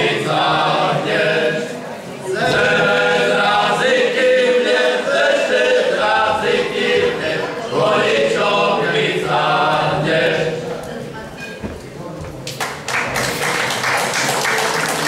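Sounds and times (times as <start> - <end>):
men's choir singing: 0.0 - 10.8.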